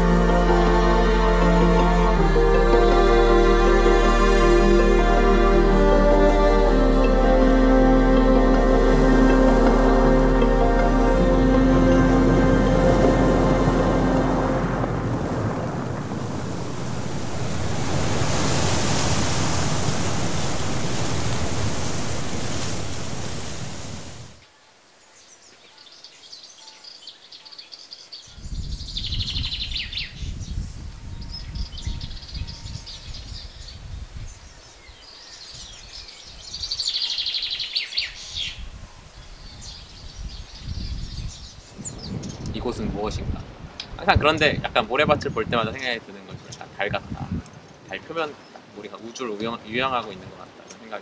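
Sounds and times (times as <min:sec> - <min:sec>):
waves breaking: 0:08.3 - 0:24.4
wind gusts on microphone: 0:08.7 - 0:24.4, 0:28.3 - 0:50.6
birds chirping: 0:25.0 - 0:43.1, 0:47.4 - 0:51.0.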